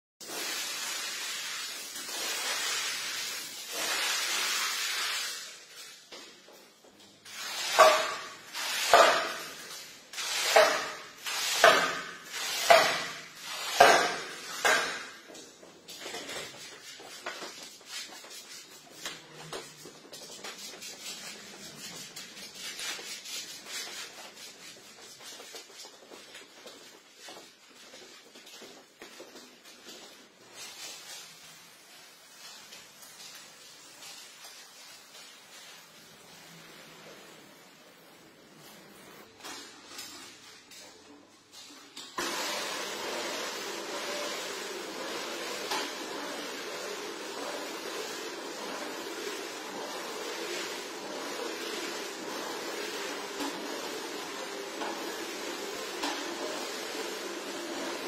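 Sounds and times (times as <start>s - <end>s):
squeegee swishing on carpet: 16.5s - 39.4s.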